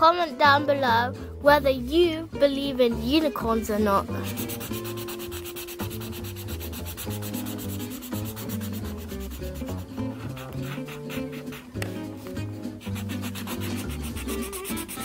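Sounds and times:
marker scribbling on paper: 3.9 - 15.0.

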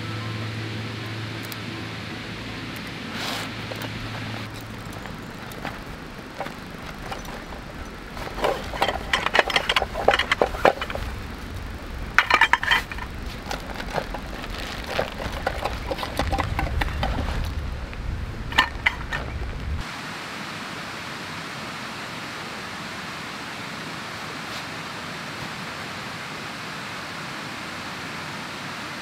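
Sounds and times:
hard items clinking and knocking: 2.8 - 19.8
fabric rustling: 3.0 - 19.8.

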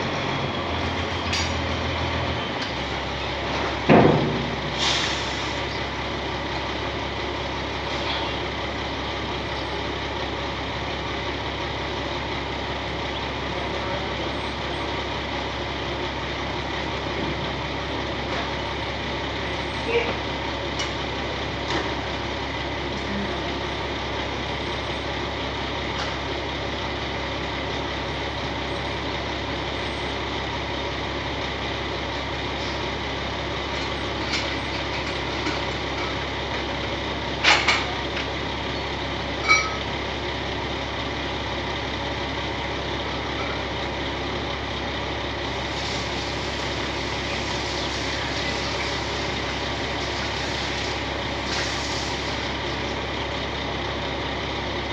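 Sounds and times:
heavy vehicle engine idling: 0.0 - 54.9.

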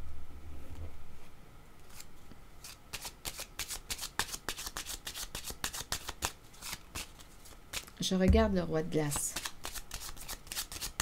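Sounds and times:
cards being shuffled: 1.8 - 8.0, 9.0 - 11.0.

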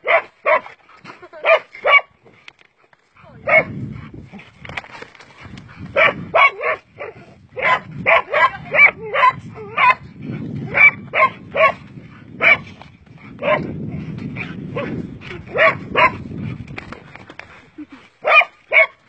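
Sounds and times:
dog barking: 0.0 - 0.7, 1.4 - 2.1, 3.4 - 3.8, 6.0 - 10.0, 10.7 - 11.8, 12.4 - 12.6, 13.4 - 13.7, 15.5 - 16.2, 18.2 - 19.0.

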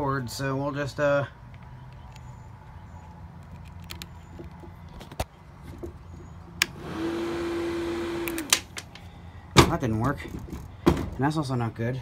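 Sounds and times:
sharp clicks: 3.0 - 5.3
electric fan motor whirring: 6.6 - 8.8.

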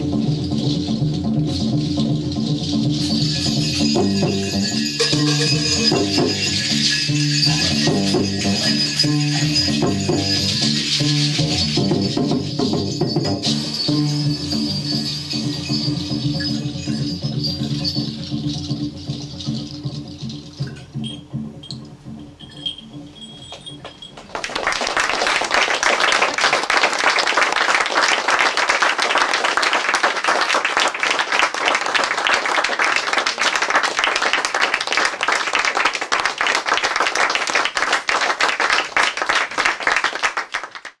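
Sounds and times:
audience applause: 24.2 - 41.0.

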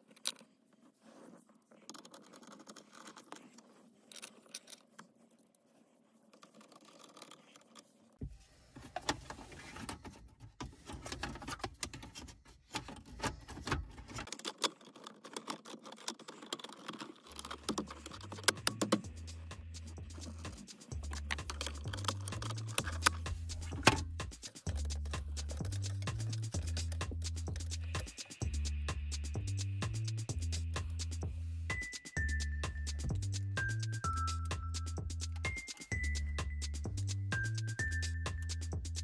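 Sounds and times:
background music with bass: 17.7 - 39.0.

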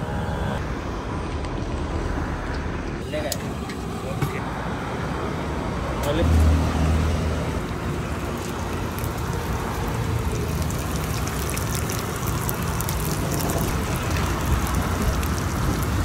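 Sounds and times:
vegetables sizzling in oil: 8.0 - 16.0.

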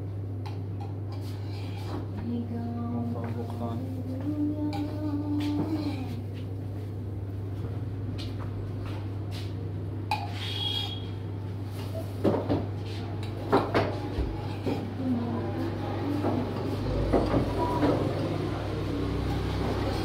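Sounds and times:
steady low hum: 0.0 - 20.0
cups and utensils clinking: 10.1 - 11.0.

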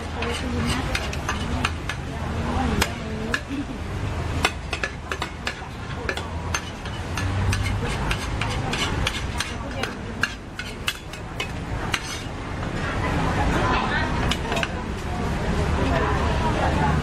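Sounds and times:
metal spatulas scraping steel pan: 0.0 - 2.1, 4.4 - 12.4.

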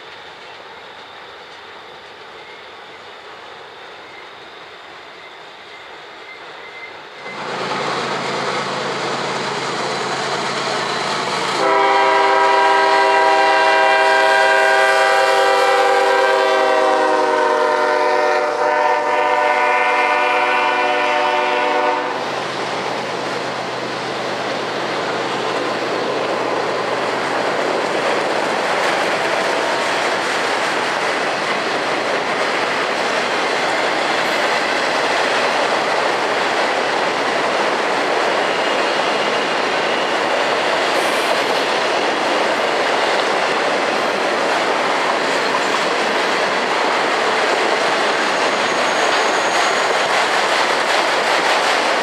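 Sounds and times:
distant train rolling over bridge: 0.0 - 52.0
rail cars clattering past: 0.0 - 52.0
locomotive horn blast: 11.6 - 22.2.

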